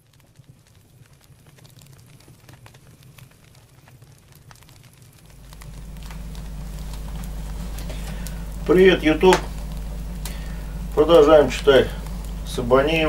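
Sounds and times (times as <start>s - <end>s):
wood fire crackling: 0.0s - 13.0s
low steady hum: 4.4s - 13.0s.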